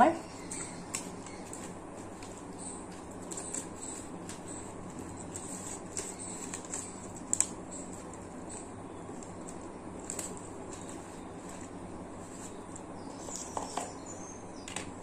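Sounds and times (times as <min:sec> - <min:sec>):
soft rustling: 0:09.1 - 0:13.8.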